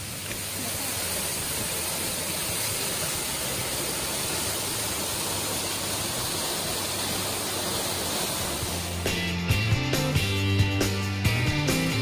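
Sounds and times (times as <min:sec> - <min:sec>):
waterfall rushing: 0:00.0 - 0:09.2.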